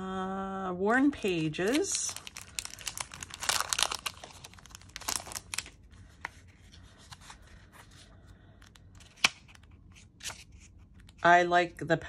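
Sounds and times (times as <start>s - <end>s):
plastic sleeve crinkling: 1.2s - 8.0s
paper being handled: 1.3s - 11.2s.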